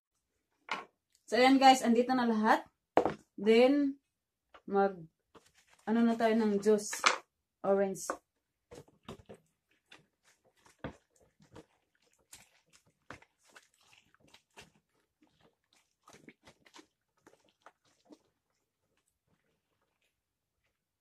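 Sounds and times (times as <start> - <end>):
wet squelching of citrus reamer: 5.3 - 6.6, 8.7 - 21.0.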